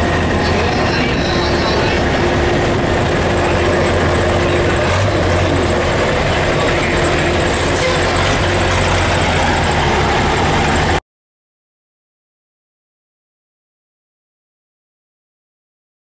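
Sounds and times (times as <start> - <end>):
diesel truck engine idling: 0.0 - 11.0.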